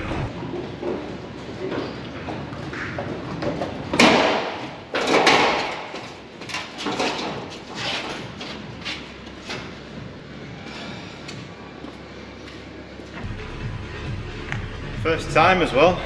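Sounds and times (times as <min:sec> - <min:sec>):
loud rushes of noise: 0:00.0 - 0:00.5
metal ramps clanking and rattling: 0:00.0 - 0:09.8.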